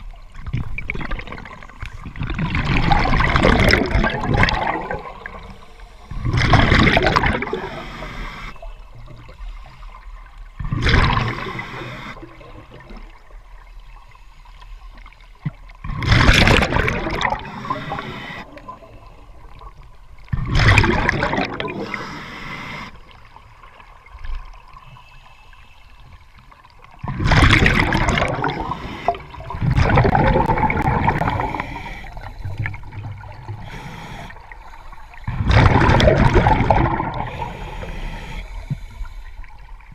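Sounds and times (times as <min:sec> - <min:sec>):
exhaled bubbles rushing: 0:00.0 - 0:07.8, 0:10.6 - 0:13.2, 0:15.8 - 0:22.1, 0:27.0 - 0:33.7, 0:35.2 - 0:37.7
diver breathing through regulator: 0:17.2 - 0:19.2, 0:21.7 - 0:23.1, 0:28.2 - 0:29.6, 0:30.8 - 0:35.6, 0:36.8 - 0:39.6.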